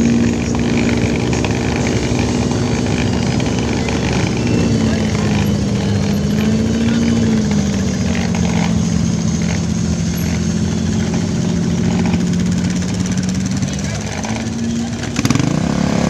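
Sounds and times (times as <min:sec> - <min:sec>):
off-road vehicle engines running: 0:00.0 - 0:16.0.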